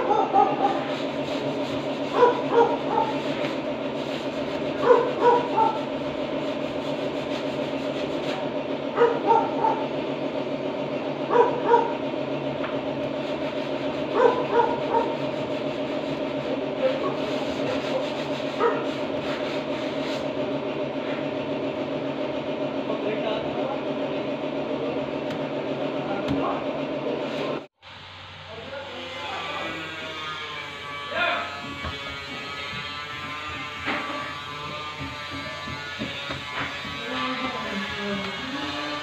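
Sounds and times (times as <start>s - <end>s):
dog barking: 0.0s - 0.9s, 2.2s - 3.2s, 4.8s - 5.8s, 9.0s - 9.9s, 11.3s - 12.0s, 14.1s - 15.2s, 18.6s - 18.9s
steady hum: 0.0s - 29.8s.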